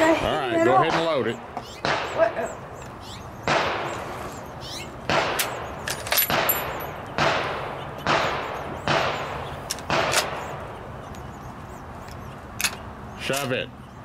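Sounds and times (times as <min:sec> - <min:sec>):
gunshots ringing out: 0:00.8 - 0:02.6, 0:03.4 - 0:04.2, 0:05.0 - 0:10.7.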